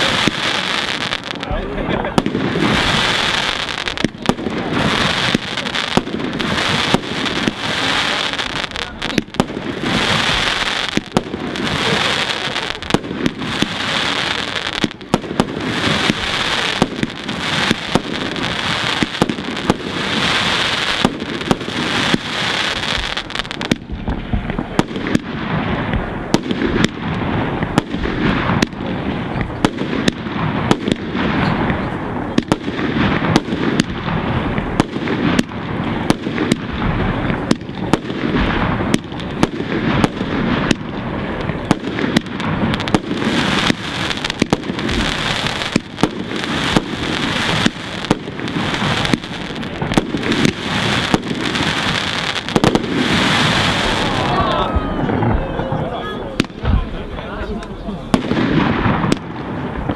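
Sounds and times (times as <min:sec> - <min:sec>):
firework shells bursting: 0:32.4 - 0:54.3.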